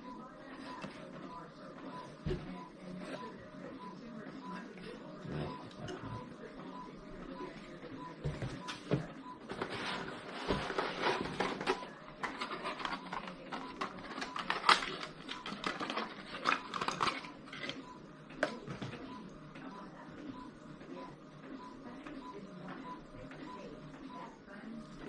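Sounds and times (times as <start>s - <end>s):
plastic packaging crinkling: 9.7s - 17.7s.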